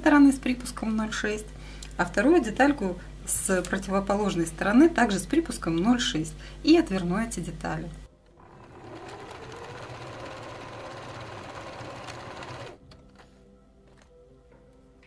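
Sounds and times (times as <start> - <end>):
faint background music: 0.0 - 15.0
electric sewing machine stitching: 8.4 - 12.8.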